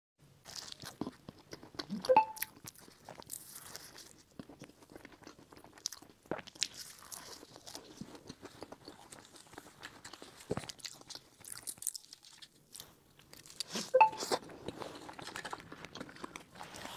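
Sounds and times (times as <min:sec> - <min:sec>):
crisp pastry crunching and chewing: 0:00.4 - 0:16.9.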